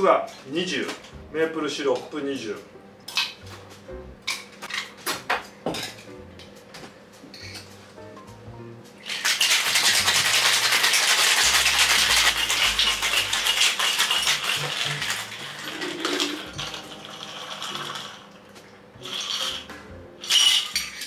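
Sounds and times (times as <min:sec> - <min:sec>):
ice rattling in cocktail shaker: 0:09.0 - 0:18.4, 0:19.0 - 0:21.0.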